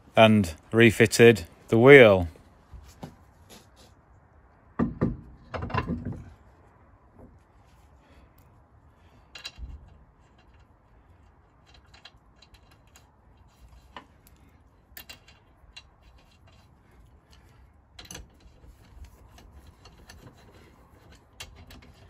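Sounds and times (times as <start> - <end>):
wheel brace clinking: 9.0 - 22.0
metallic clicks of wheel nuts: 9.1 - 22.0.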